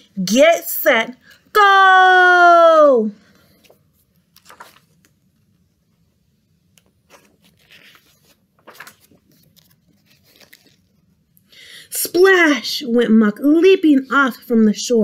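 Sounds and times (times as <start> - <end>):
paper pages rustling: 3.5 - 5.6, 6.6 - 11.2.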